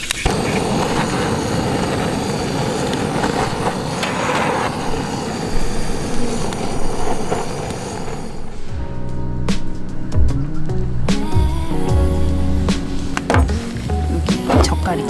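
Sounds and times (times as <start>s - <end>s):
torch flame roaring hiss: 0.0s - 9.9s.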